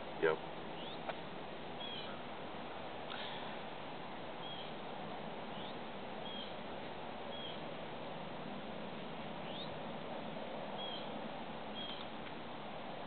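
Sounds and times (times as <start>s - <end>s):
outdoor background hiss: 0.0s - 13.0s
bird chirping: 0.7s - 1.1s, 1.8s - 2.2s, 4.4s - 4.8s, 5.5s - 6.6s, 7.3s - 7.6s, 9.4s - 9.8s, 10.8s - 12.1s.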